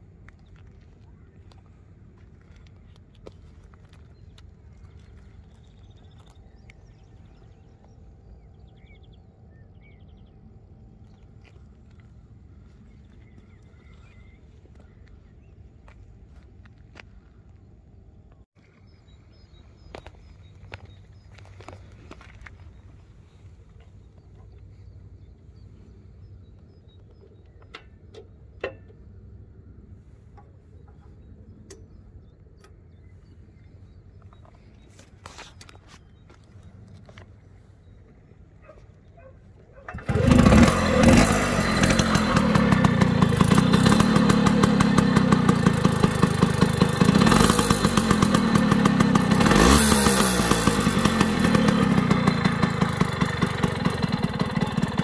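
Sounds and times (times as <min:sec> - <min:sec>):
moped parts clicking and tapping: 0:27.2 - 0:29.1.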